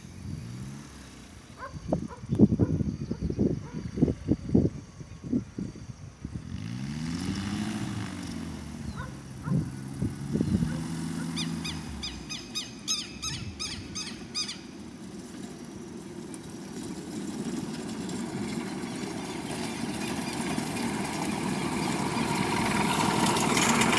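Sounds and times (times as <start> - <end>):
ultralight aircraft engine droning: 0.0 - 23.9
bird chirping: 10.4 - 14.8.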